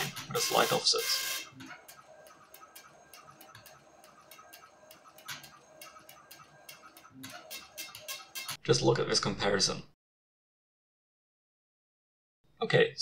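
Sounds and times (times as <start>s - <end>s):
dot-matrix printer clicking: 0.0s - 8.6s.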